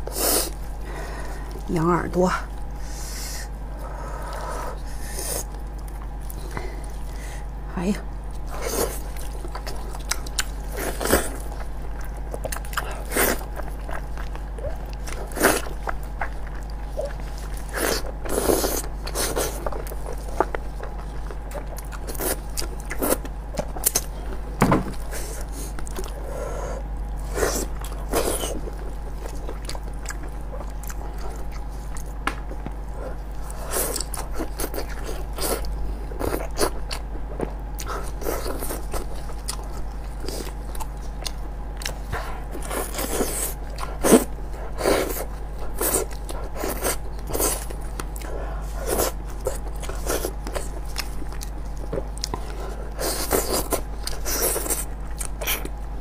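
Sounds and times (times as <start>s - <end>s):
steady low hum: 0.0s - 56.0s
person biting and chewing: 8.4s - 24.2s.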